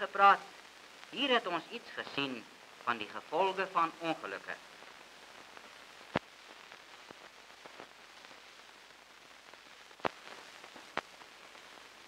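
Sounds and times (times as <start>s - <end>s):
old film soundtrack hiss: 0.0s - 12.0s
clicks and pops: 6.1s - 6.3s, 10.0s - 11.1s.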